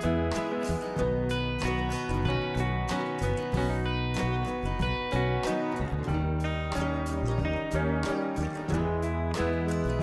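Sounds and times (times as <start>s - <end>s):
plucked guitar notes: 0.0s - 10.0s
steady bass: 0.0s - 10.0s.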